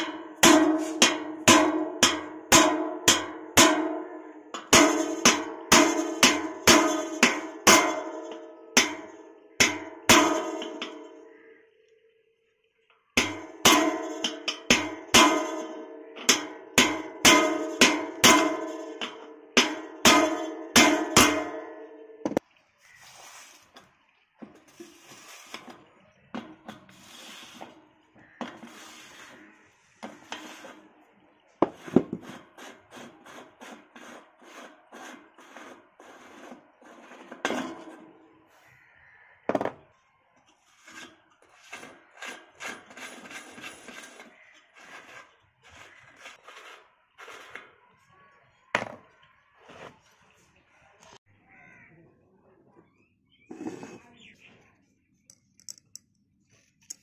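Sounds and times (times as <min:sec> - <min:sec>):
hand tools scraping rusty metal: 0:00.0 - 0:03.7, 0:04.6 - 0:11.1, 0:13.2 - 0:21.7, 0:24.5 - 0:38.6, 0:40.6 - 0:47.9, 0:53.5 - 0:54.4
sharp metal knocks: 0:00.0 - 0:11.2, 0:13.2 - 0:22.4.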